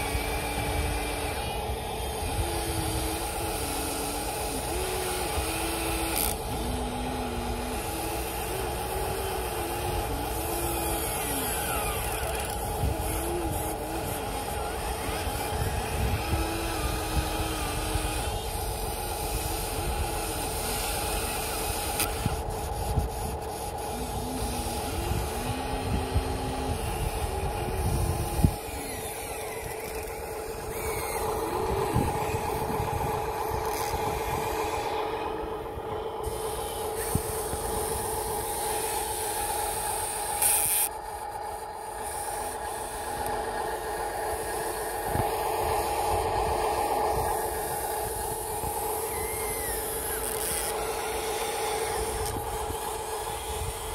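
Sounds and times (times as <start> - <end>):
electric motors whining: 0.0 - 53.9
steady electric hum: 0.0 - 53.9
low rumbling: 22.2 - 40.3.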